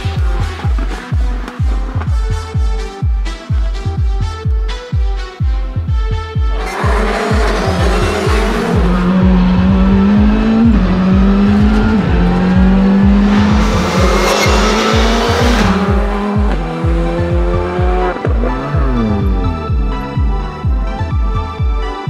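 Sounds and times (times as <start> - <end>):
electronic dance music: 0.0 - 22.0
rally car engine revving: 6.5 - 21.6.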